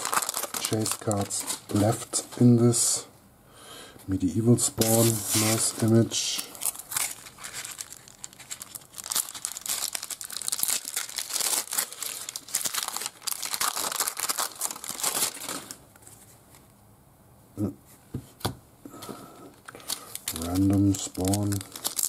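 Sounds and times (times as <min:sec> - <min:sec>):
foil wrapper tearing and crinkling: 0:00.0 - 0:02.0, 0:04.8 - 0:15.8, 0:19.6 - 0:22.0.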